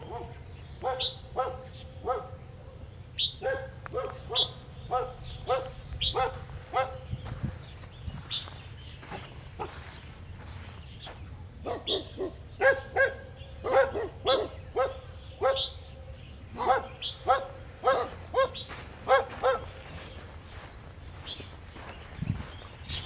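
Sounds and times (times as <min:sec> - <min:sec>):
puppy barking high-pitched: 0:00.0 - 0:02.4, 0:03.4 - 0:07.1, 0:11.6 - 0:15.8, 0:16.6 - 0:19.8.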